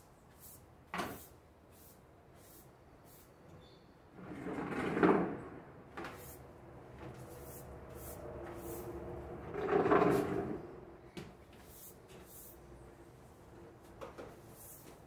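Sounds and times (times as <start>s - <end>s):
broom scrubbing wet tiled floor: 6.0s - 10.6s.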